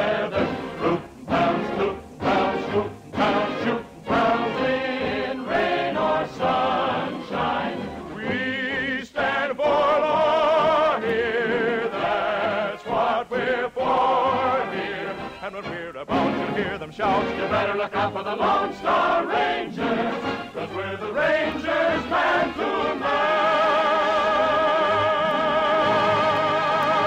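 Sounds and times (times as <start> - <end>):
choir singing show tune: 0.0 - 27.0.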